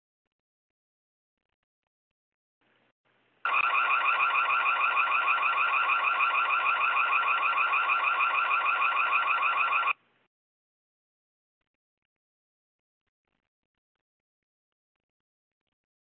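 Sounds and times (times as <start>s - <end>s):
warbling electronic alarm siren: 3.5s - 10.0s.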